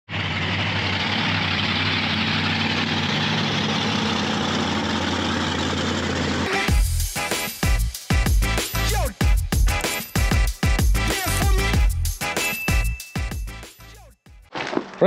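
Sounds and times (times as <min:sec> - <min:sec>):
truck engine running: 0:00.0 - 0:09.1
music with drum beat: 0:06.5 - 0:14.0.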